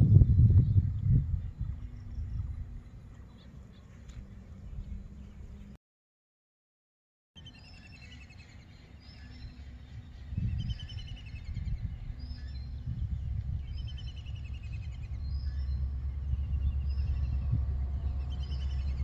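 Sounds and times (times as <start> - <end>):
low rumble: 0.0 - 3.4, 9.9 - 19.0
small birds chirping: 7.4 - 19.0.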